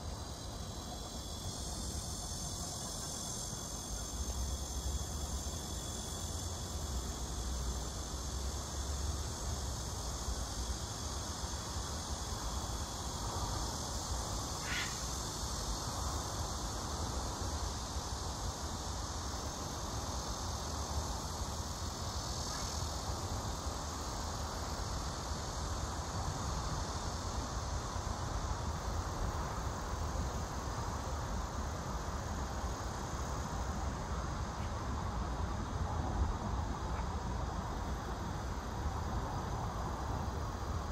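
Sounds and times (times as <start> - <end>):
high-pitched insect chorus: 0.0 - 40.9.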